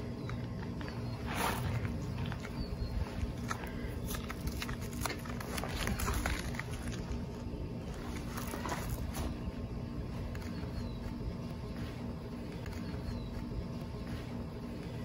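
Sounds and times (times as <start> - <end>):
low rumble: 0.0 - 11.7.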